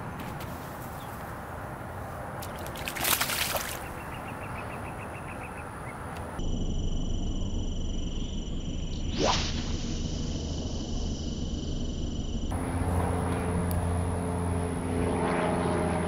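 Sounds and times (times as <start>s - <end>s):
outdoor background noise: 0.0s - 16.0s
fish splashing in water: 2.4s - 4.1s.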